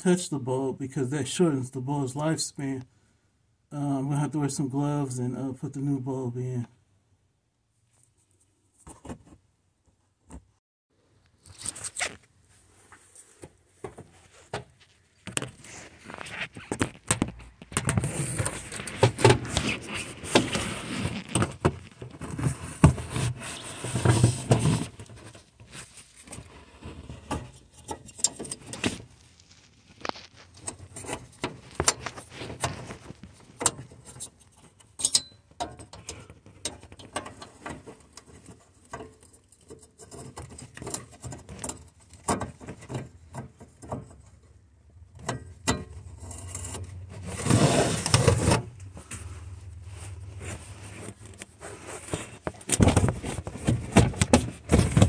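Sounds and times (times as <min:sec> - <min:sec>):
hands rustling and scraping: 0:11.4 - 0:34.8, 0:46.3 - 0:55.0.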